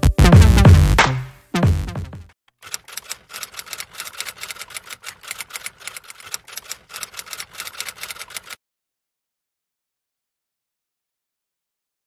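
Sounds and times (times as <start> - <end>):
typewriter key clacks: 2.6 - 8.6.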